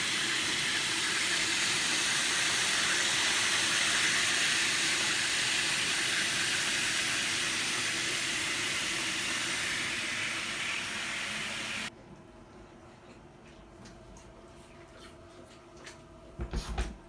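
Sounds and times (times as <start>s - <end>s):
running bath water: 0.0s - 11.9s.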